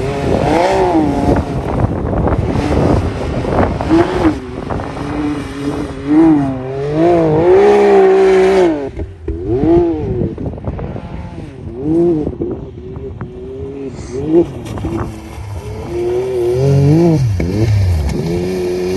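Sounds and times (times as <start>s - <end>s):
engine revving hard: 0.0s - 10.3s, 15.3s - 18.9s
wheels spinning through mud and snow: 0.0s - 12.4s, 13.5s - 18.9s.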